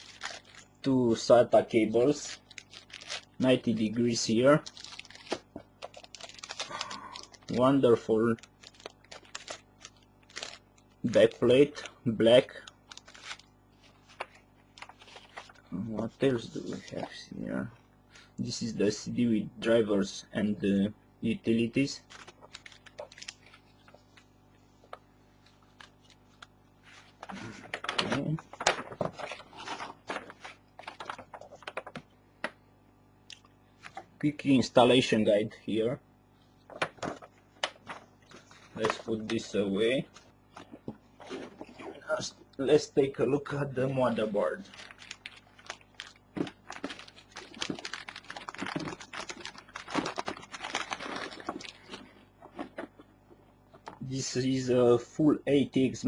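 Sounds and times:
plastic packaging crinkling: 0:00.0 - 0:00.9, 0:01.6 - 0:15.6, 0:22.0 - 0:24.5, 0:25.3 - 0:32.0, 0:43.8 - 0:53.0.

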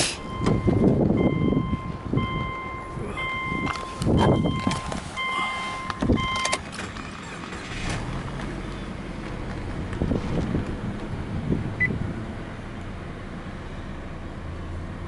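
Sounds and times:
car engine starting and idling: 0:00.0 - 0:15.0
chiming dashboard warning tone: 0:00.2 - 0:06.6
short beep: 0:00.2 - 0:06.6.

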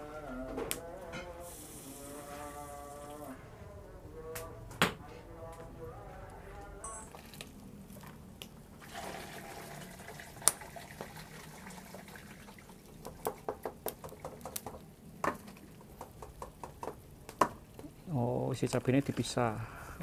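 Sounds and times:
broth pouring through a sieve: 0:08.8 - 0:13.0.

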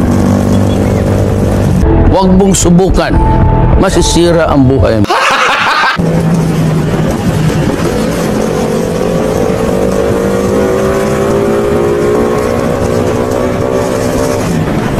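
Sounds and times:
motorcycle engine running: 0:00.0 - 0:02.0.

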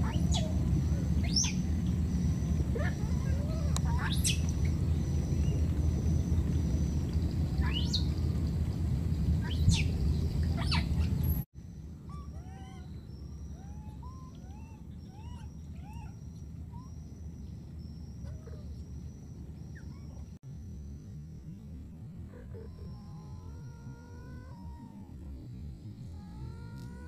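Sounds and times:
animal squeals: 0:00.0 - 0:04.8, 0:12.1 - 0:17.0, 0:22.3 - 0:27.0
loud low rumble: 0:00.0 - 0:11.4
faint high whine: 0:00.0 - 0:27.0.

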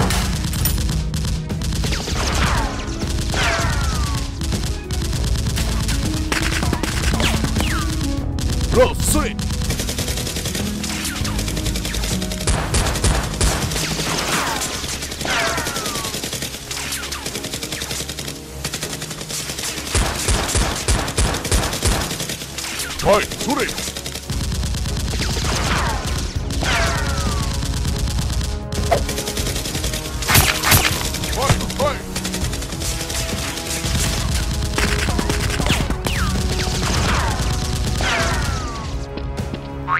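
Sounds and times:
rapid gunfire sound effects: 0:00.0 - 0:39.0
background music: 0:00.0 - 0:39.9.

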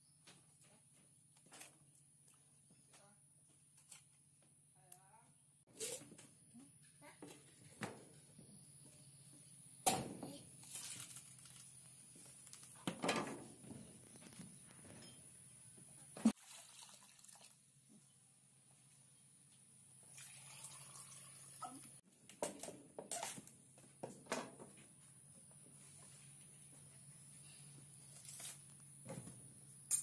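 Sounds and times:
water pouring into plastic bowl: 0:16.4 - 0:17.6, 0:20.1 - 0:21.8.

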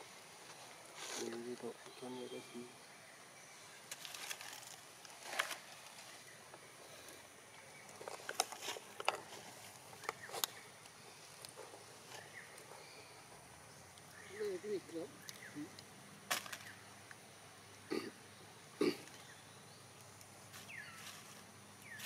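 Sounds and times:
faint outdoor background: 0:00.0 - 0:22.0
dry leaves crackling: 0:00.4 - 0:01.9, 0:03.6 - 0:07.1, 0:07.7 - 0:16.8, 0:20.0 - 0:22.0.

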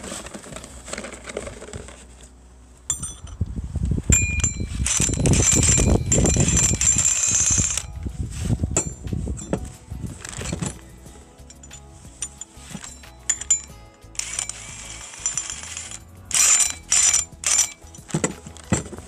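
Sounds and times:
high metallic ring: 0:02.9 - 0:03.4, 0:04.1 - 0:08.1, 0:11.4 - 0:18.0
socket clinking on nut: 0:11.4 - 0:19.0.

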